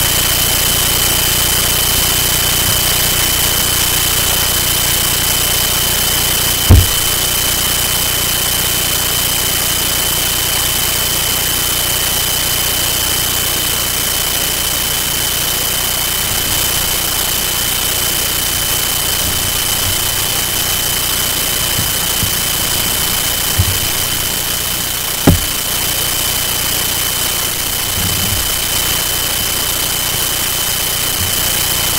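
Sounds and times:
loud hiss with high whine: 0.0 - 31.9
low bump: 6.7 - 7.2, 18.4 - 26.5.

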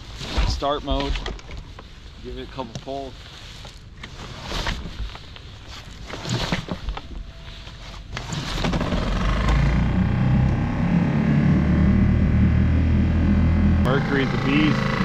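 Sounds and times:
recoil starter cord rips: 8.1 - 10.6
outboard engine running: 8.6 - 15.0.

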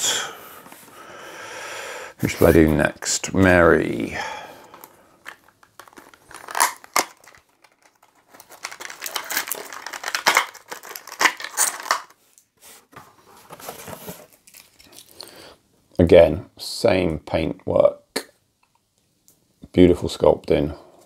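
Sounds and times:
plastic packaging crinkling: 4.7 - 12.2, 13.5 - 15.3.

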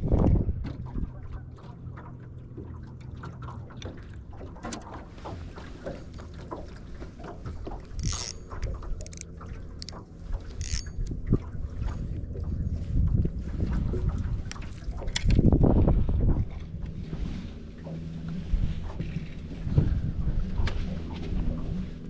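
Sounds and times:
wind on microphone: 0.0 - 1.2, 10.5 - 22.0
low steady hum: 0.0 - 22.0
water lapping against metal hull: 0.0 - 22.0
small irregular clicks: 7.6 - 11.2, 14.4 - 15.4.

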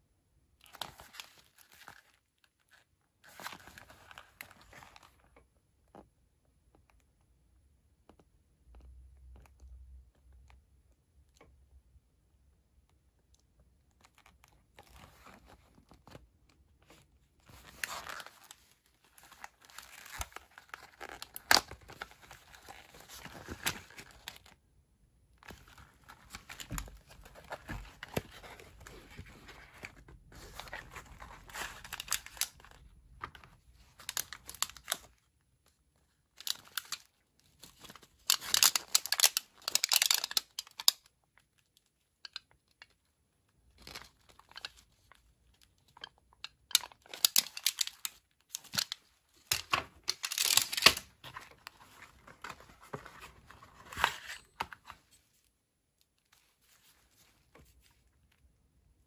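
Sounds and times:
cardboard packaging rustling: 16.8 - 24.6, 25.4 - 35.2, 45.9 - 55.4.

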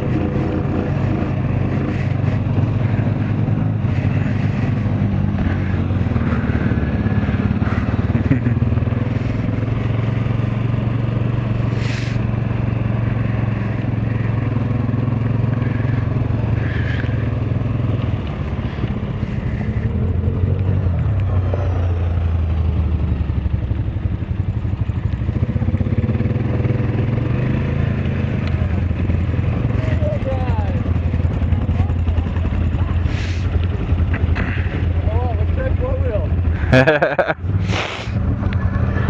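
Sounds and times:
atv engine running: 0.0 - 39.0.

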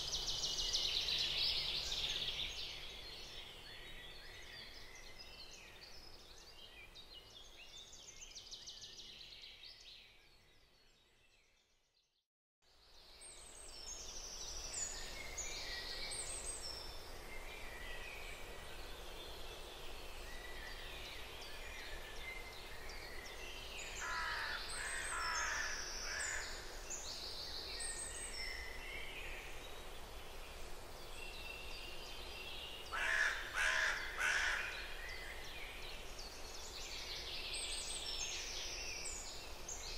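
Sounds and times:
loud bird calls: 24.0 - 26.6, 32.9 - 35.0.

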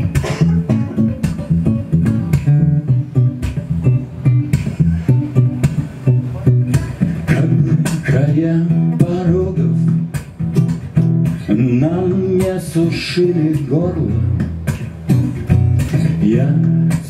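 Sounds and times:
acoustic guitar strumming: 0.0 - 17.0
man singing: 6.7 - 10.2, 11.4 - 14.4, 16.0 - 17.0.

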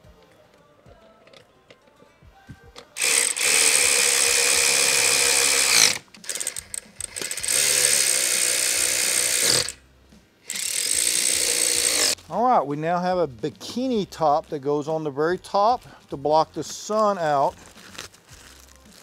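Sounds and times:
cordless drill whirring: 3.0 - 9.8, 10.5 - 12.2.

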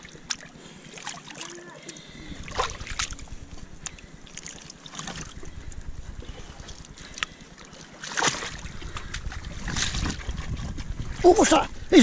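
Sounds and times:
water sloshing in rock pool: 0.0 - 12.0
wind rumbling on microphone: 2.2 - 4.3, 5.0 - 7.4, 8.4 - 12.0
water splash: 2.4 - 3.3, 8.0 - 8.7.

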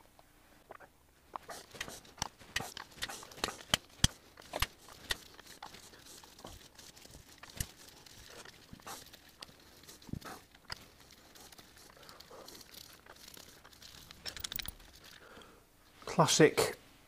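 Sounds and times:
metallic clicks of bolts and tool: 13.9 - 15.2.

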